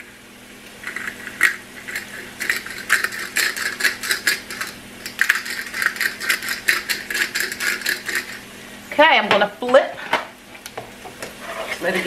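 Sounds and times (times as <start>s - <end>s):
pepper mill grinding: 0.8s - 8.5s.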